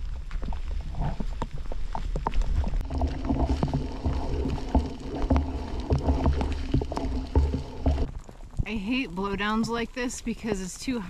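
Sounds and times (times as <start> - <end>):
footsteps on rocky trail: 0.0 - 8.5.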